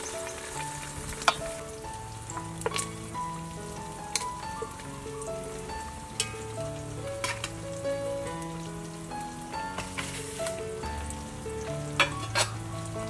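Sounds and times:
pot sizzling: 0.0s - 13.0s
soft background music: 0.0s - 13.0s
metal utensil clicking on pot: 12.0s - 12.6s.

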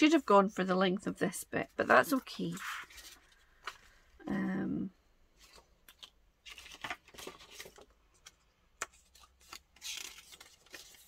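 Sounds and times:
paper sliding and rustling: 9.1s - 11.0s.

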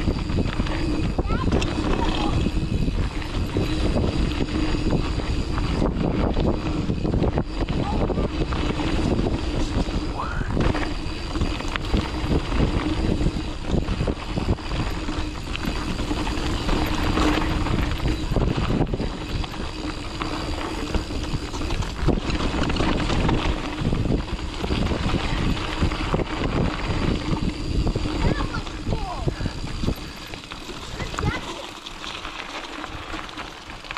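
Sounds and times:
bike knocks and rattles: 0.0s - 33.9s
bike tyres rumbling on dirt: 0.0s - 33.9s
wind rushing over microphone: 0.0s - 33.9s.

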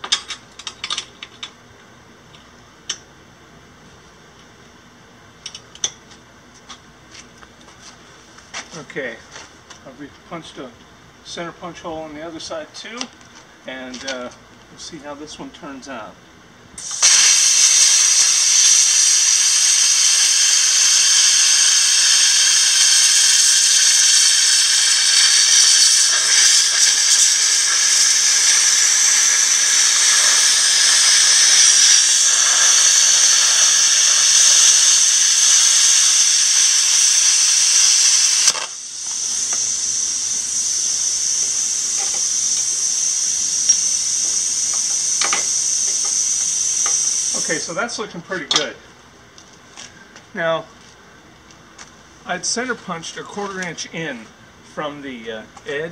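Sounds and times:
plasma cutter hissing: 16.8s - 48.0s.

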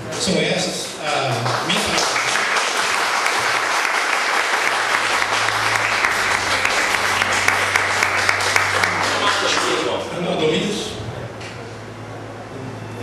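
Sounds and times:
crowd applauding: 1.2s - 10.1s.

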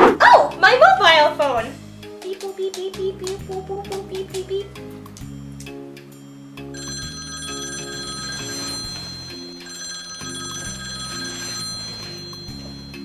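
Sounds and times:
background music with low notes: 0.0s - 13.0s
telephone ringing: 6.7s - 13.0s.

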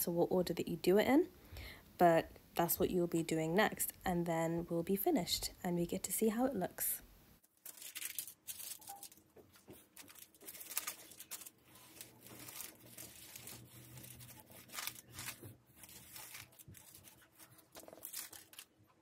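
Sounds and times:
baking paper rustling: 7.4s - 19.0s.

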